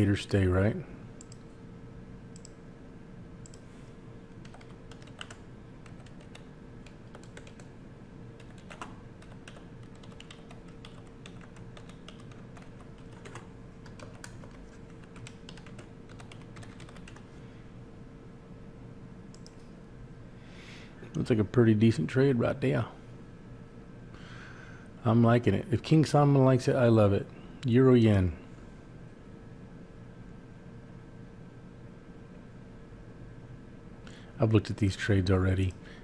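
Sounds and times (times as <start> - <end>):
faint steady hum: 0.0 - 36.0
keyboard typing: 4.4 - 7.7, 8.4 - 17.3.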